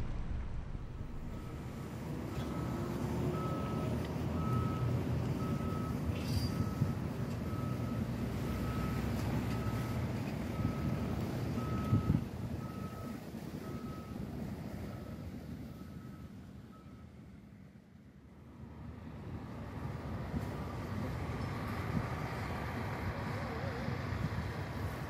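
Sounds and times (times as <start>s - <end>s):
low rumble of engines: 0.0s - 25.0s
back-up alarm beeping: 1.1s - 10.0s, 11.6s - 14.2s.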